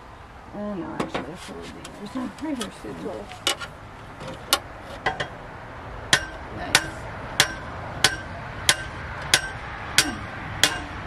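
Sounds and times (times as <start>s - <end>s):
metal fence post being pounded: 4.5s - 5.4s, 6.1s - 11.0s.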